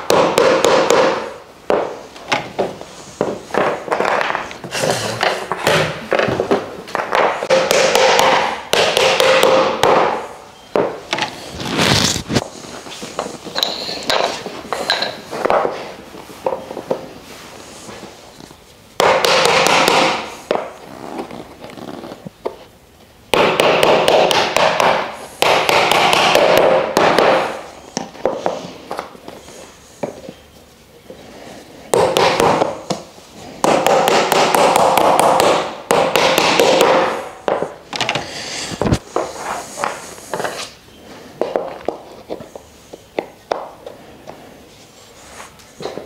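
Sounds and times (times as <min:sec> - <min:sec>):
rapid tapping and knocking on wood: 0:00.1 - 0:04.4, 0:05.2 - 0:10.2, 0:33.6 - 0:38.2.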